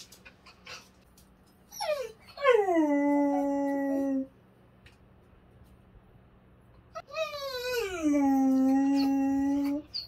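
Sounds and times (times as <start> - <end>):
dog howling: 7.1 - 10.0.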